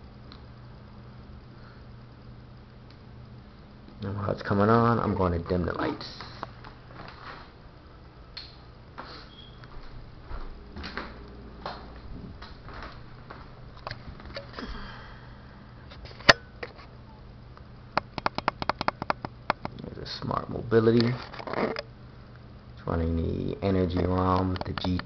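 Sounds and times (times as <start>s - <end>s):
low steady hum: 0.0s - 25.0s
sharp clicks: 18.0s - 19.8s
faint clicks and knocks: 18.0s - 19.9s.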